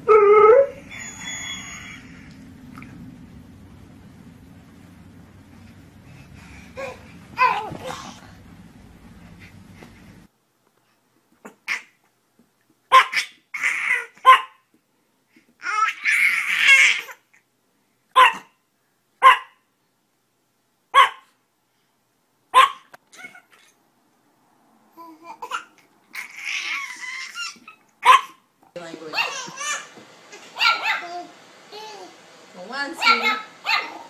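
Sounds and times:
small dog barking: 12.9 - 13.3, 14.2 - 14.6, 18.2 - 18.6, 19.2 - 19.6, 20.9 - 21.4, 22.5 - 22.9, 28.0 - 28.4, 29.1 - 31.3, 33.0 - 34.0.

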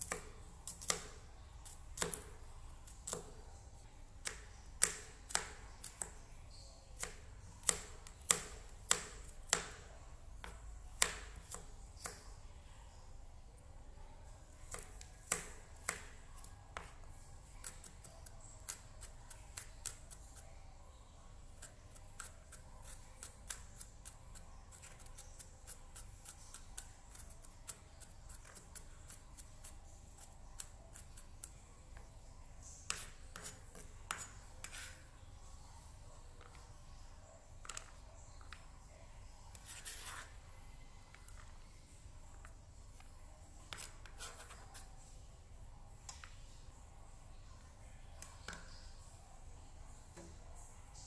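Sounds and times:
knife scraping across board: 39.6 - 40.4.

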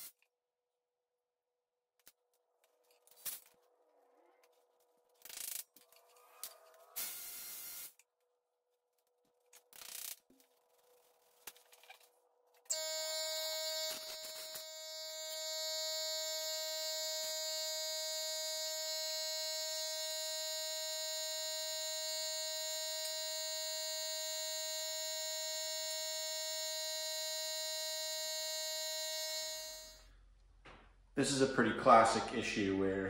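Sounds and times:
buzzing drone: 12.7 - 30.0.

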